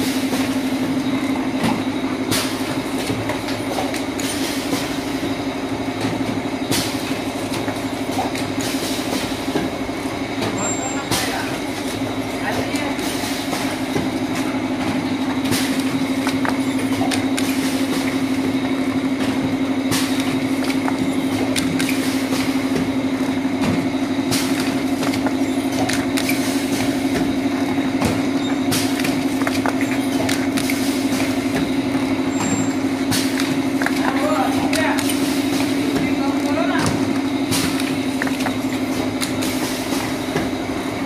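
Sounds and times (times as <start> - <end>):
filling machine humming: 0.0 - 41.0
machine clicks and hisses: 19.2 - 23.0.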